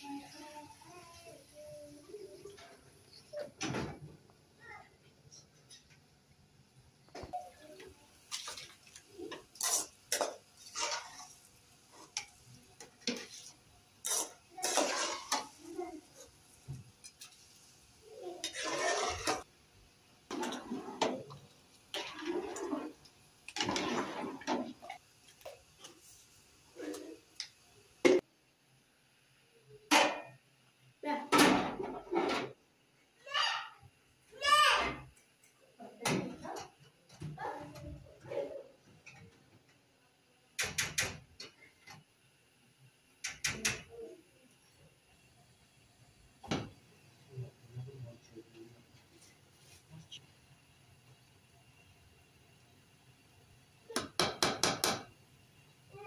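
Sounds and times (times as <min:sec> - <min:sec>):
water sloshing in a pot: 0:07.7 - 0:19.5, 0:20.3 - 0:27.2
sharp kitchen knocks: 0:53.9 - 0:55.1.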